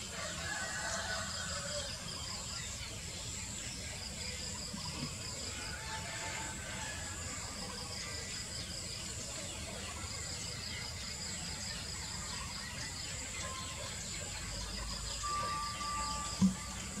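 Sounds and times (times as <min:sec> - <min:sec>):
insects chirping: 0:00.2 - 0:17.0
thin whistle-like tone: 0:14.9 - 0:17.0.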